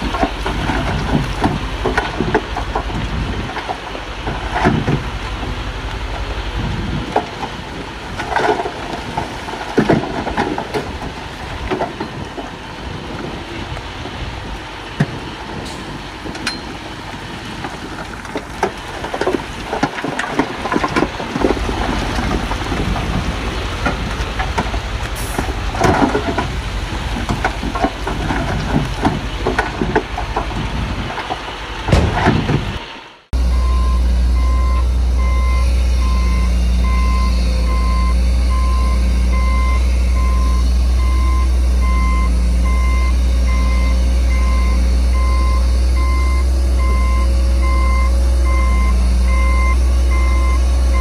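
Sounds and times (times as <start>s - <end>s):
metal and stone clanking: 0.0s - 12.6s, 17.5s - 32.9s
diesel engine rumble: 0.0s - 51.0s.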